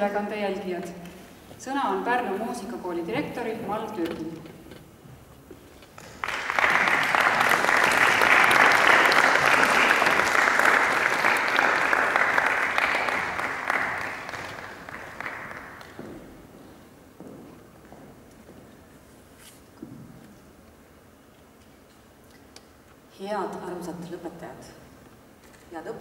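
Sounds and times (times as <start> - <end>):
audience applauding: 6.0 - 16.0.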